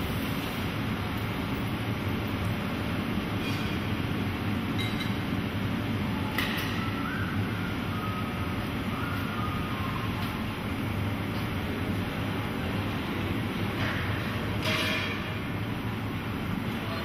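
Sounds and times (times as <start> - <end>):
hot shop roar and hum: 0.0 - 17.0.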